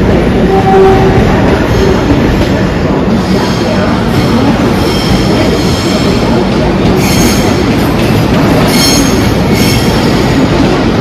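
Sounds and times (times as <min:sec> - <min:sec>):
electric train rumbling: 0:00.0 - 0:11.0.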